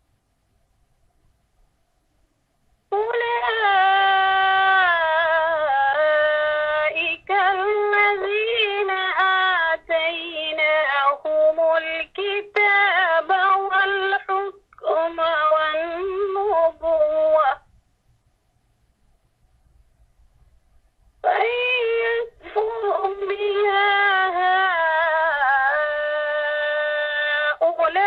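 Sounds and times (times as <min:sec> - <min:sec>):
person reciting melodically: 0:02.9 - 0:17.7, 0:21.2 - 0:28.0.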